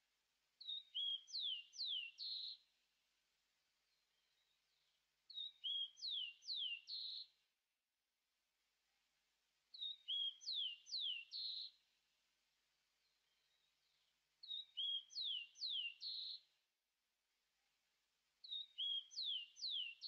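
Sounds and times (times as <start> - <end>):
songbird singing: 0.6 - 2.7, 3.8 - 7.4, 9.7 - 11.8, 13.0 - 16.6, 18.4 - 20.0.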